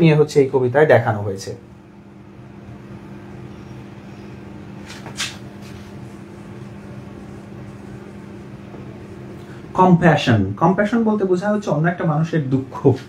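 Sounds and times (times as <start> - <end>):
low room hum: 0.0 - 13.0
marker scratching on whiteboard: 4.8 - 6.4.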